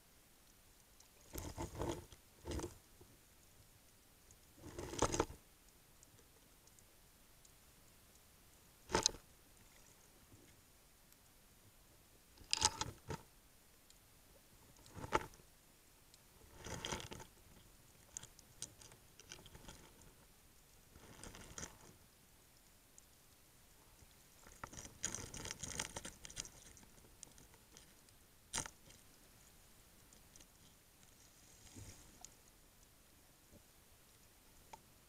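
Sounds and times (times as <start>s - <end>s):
rough scraping and ticking: 1.0s - 2.8s, 4.3s - 5.4s, 12.4s - 13.2s, 14.7s - 15.4s, 16.4s - 22.0s, 24.0s - 29.2s.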